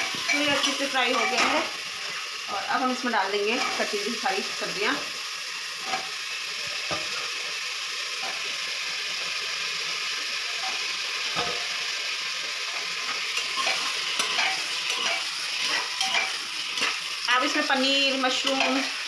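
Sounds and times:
vegetables sizzling in oil: 0.0s - 19.0s.

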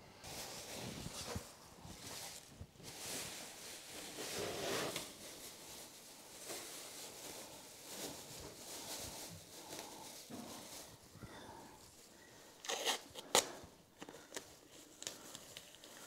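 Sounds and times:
plastic sheet crinkling: 0.2s - 11.1s, 12.5s - 16.0s.

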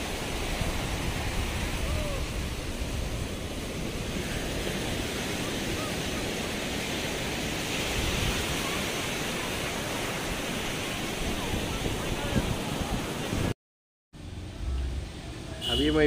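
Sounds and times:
wind buffeting microphone: 0.0s - 13.5s
ocean surf breaking: 0.0s - 13.6s.

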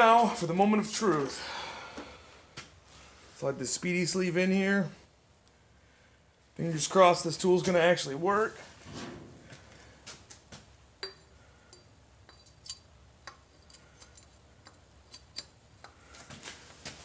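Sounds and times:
light metallic clicks and clinks: 11.0s - 16.0s.

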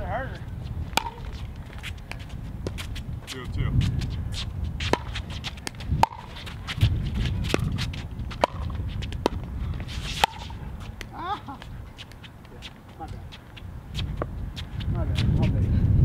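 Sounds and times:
paddles striking pickleball: 0.9s - 3.4s, 4.8s - 13.2s.

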